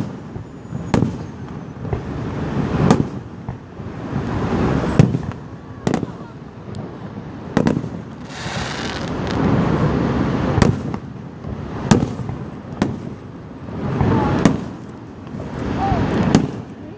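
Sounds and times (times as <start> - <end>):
rushing wash of noise: 0.0 - 16.9
firework shells bursting: 7.5 - 9.8.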